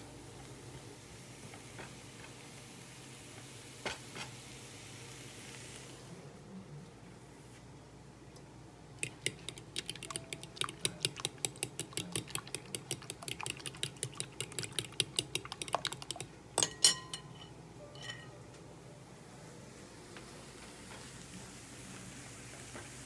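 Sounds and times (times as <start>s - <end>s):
fork beating eggs in glass bowl: 9.0s - 17.5s
fork knocking bowl: 9.0s - 18.3s.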